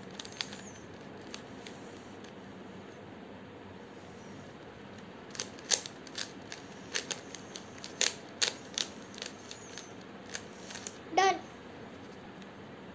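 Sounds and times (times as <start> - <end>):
plastic cube layers clicking: 5.3 - 11.0.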